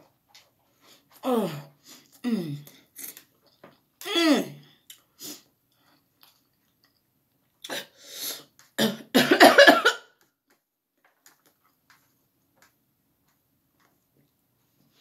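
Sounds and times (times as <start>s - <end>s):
person coughing: 8.8s - 10.1s.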